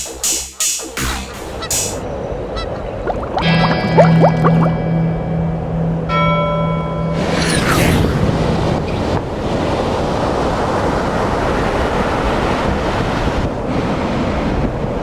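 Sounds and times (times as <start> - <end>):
wind on microphone: 8.0 - 15.0.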